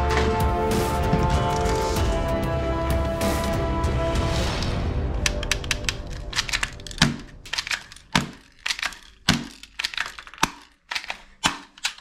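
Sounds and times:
toy guns clacking in a box: 5.2s - 12.0s.

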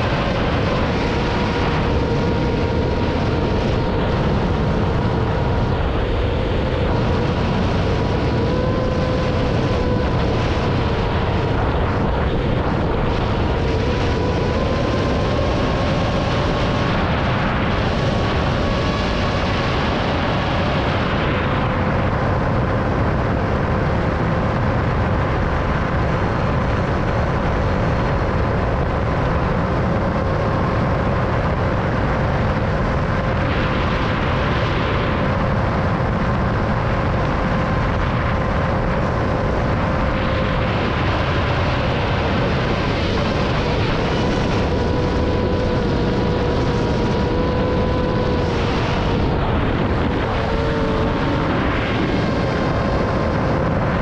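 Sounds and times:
wind rush on microphone: 0.0s - 54.0s
drone motors whining: 43.4s - 51.6s.

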